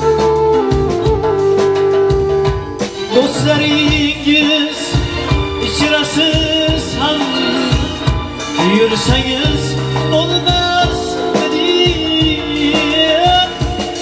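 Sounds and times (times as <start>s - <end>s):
electronic keyboards: 0.0s - 14.0s
steady drum beat: 0.0s - 14.0s
man singing ornamented vocal line: 8.6s - 14.0s.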